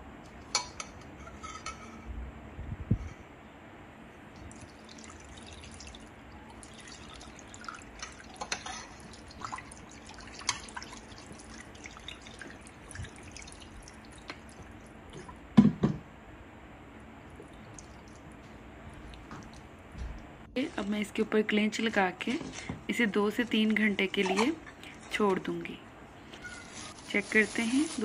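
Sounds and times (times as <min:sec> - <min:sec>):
water pouring into steel bowl: 0:04.5 - 0:14.6.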